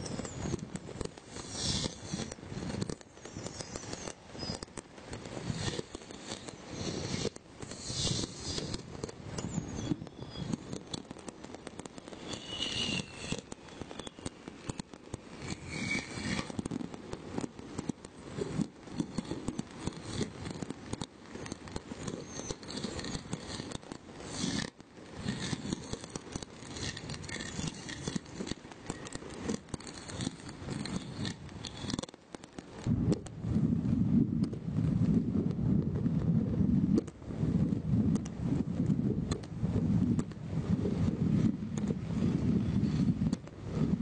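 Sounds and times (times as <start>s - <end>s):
fireworks crackling and banging: 0.0s - 33.4s.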